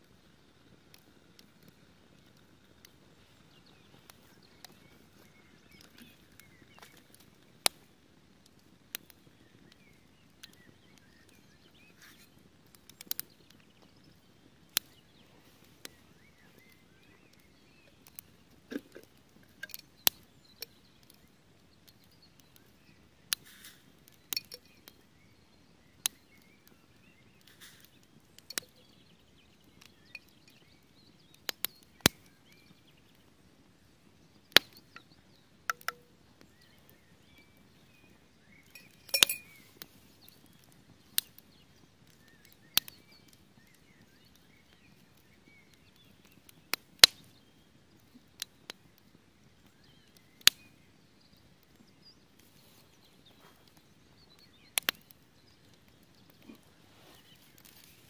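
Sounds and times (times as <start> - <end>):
campfire crackling and popping: 0.0 - 58.0
low rush of burning wood: 0.0 - 58.0
spoon clinking in steel cup: 38.8 - 39.6.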